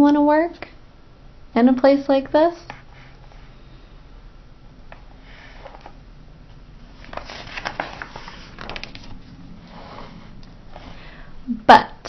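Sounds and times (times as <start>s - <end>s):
soft sniff: 2.8s - 4.0s
book page turning: 5.0s - 10.9s.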